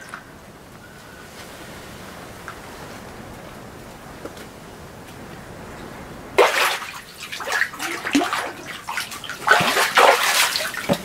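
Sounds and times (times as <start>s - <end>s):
water splashing from thrashing fish: 6.4s - 11.0s.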